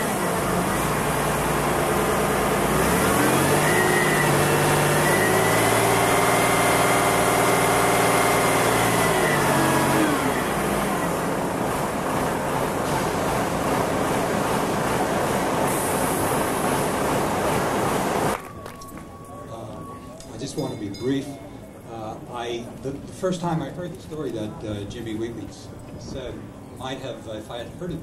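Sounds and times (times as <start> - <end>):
crane engine revving and idling: 0.0 - 20.0.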